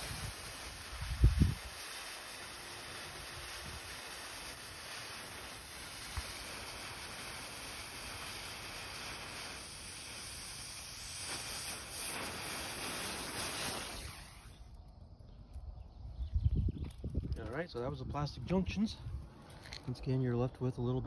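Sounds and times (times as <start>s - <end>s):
fuse burning with hiss: 0.0s - 15.0s.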